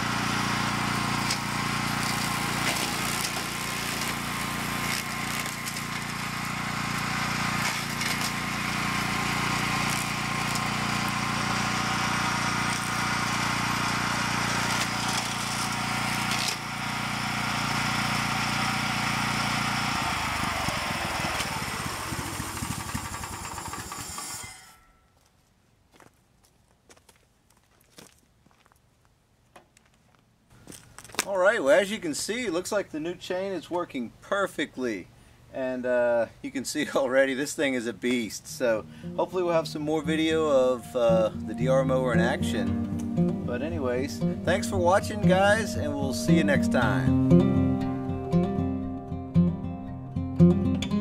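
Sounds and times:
brush mower engine running: 0.0s - 24.8s, 36.5s - 49.5s.

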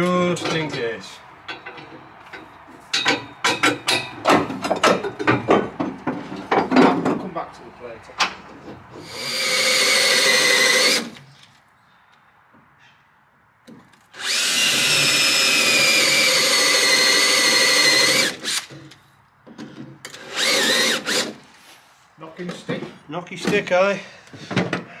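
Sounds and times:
power drill boring into steel: 9.0s - 11.2s, 14.2s - 18.7s, 20.2s - 21.4s.

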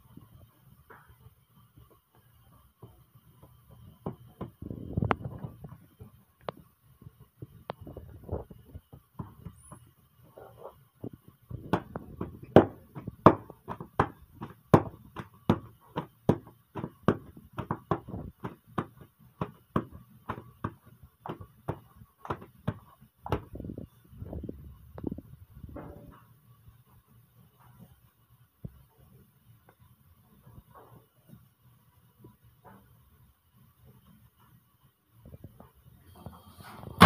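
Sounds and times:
dough slapping and patting: 11.0s - 23.8s.

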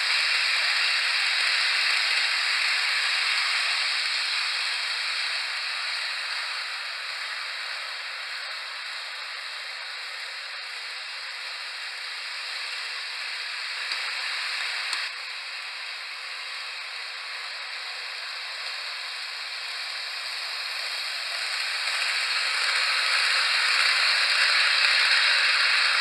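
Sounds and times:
model train running on track: 0.0s - 26.0s.

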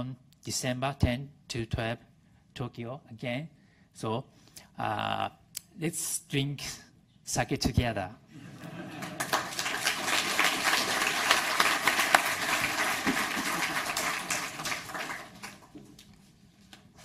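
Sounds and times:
audience applauding: 8.5s - 16.0s.

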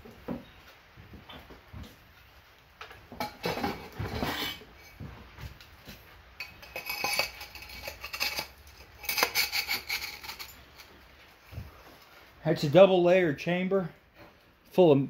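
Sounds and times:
metal parts scraping and clinking: 3.2s - 5.0s, 6.4s - 11.0s.

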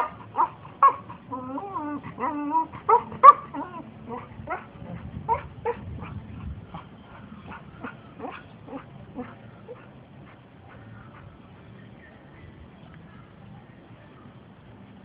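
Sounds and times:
dog yipping and whining: 0.0s - 6.2s.

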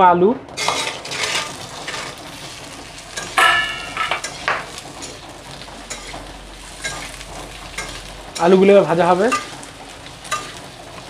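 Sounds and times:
spatula scraping metal pan: 0.6s - 5.2s
potatoes sizzling in oil: 0.6s - 11.0s.

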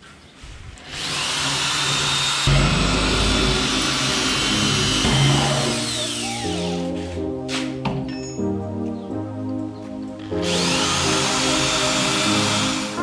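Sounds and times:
power drill boring into concrete: 0.8s - 6.8s, 10.4s - 13.0s.

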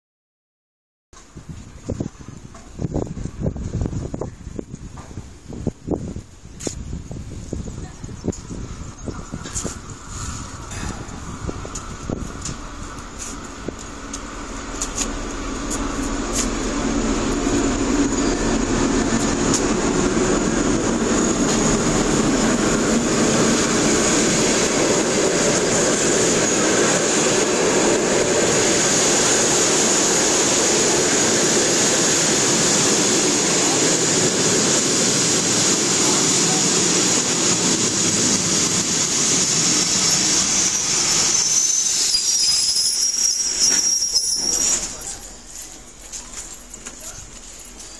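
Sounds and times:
train carriages rumbling: 1.2s - 47.9s
high squeal of train brakes: 8.8s - 12.1s, 39.1s - 45.8s.

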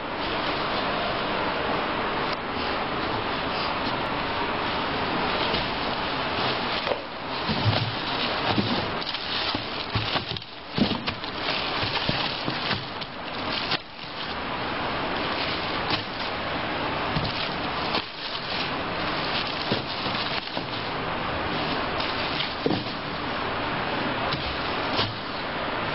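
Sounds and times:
plastic wrapping crinkling: 3.3s - 23.3s.

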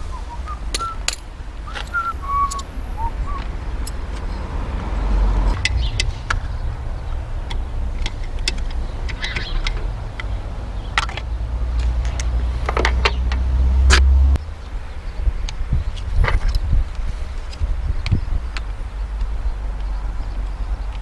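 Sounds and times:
person whistling: 0.0s - 1.1s, 1.7s - 3.4s
steady low rumble: 0.0s - 20.8s.

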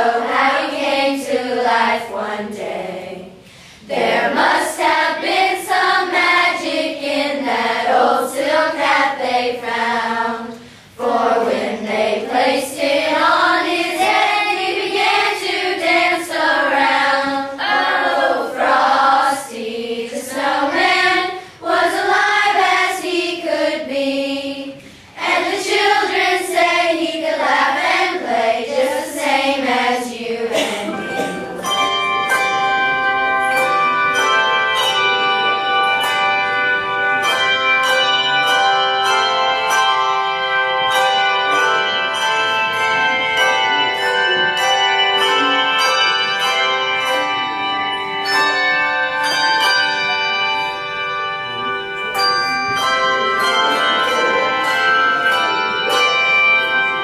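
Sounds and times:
choir of children and women singing: 0.0s - 32.8s.

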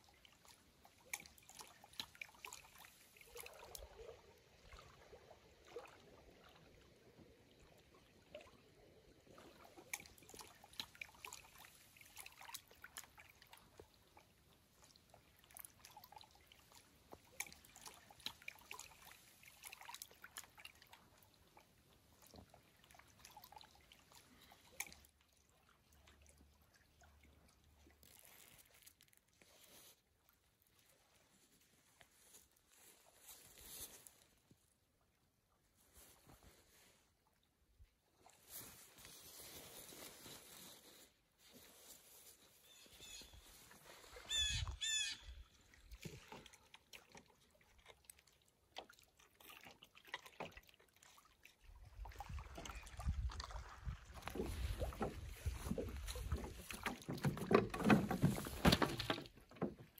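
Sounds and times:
small ticks and drips: 0.0s - 8.6s, 9.3s - 31.1s, 44.4s - 58.3s
water lapping on rocks: 0.0s - 29.9s, 38.2s - 59.9s
soft rustle: 27.9s - 34.8s, 35.6s - 37.3s, 38.2s - 44.8s.

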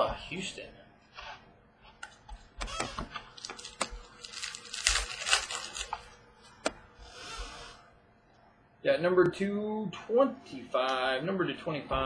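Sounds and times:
wrapper crinkling: 3.3s - 6.0s
cards clicking and rustling: 3.4s - 6.0s.

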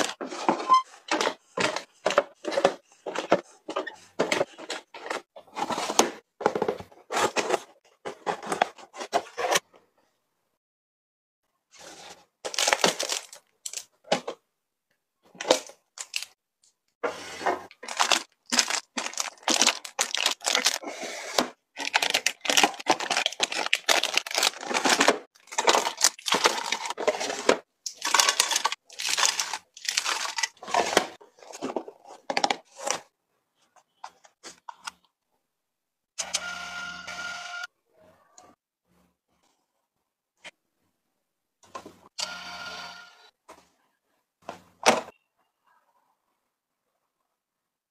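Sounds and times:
plastic wrappers crinkling: 12.4s - 13.9s, 15.4s - 16.4s, 17.7s - 20.9s, 21.8s - 32.9s.

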